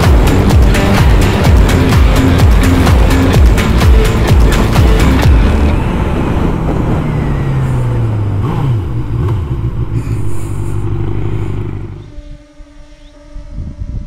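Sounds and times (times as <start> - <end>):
motorcycle engine slowing: 0.0 - 12.2
wind noise: 0.0 - 14.0.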